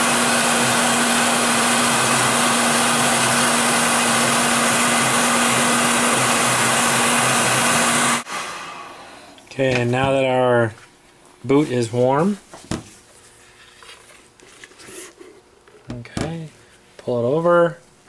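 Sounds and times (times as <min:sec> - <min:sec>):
heat gun fan blowing: 0:00.0 - 0:09.9.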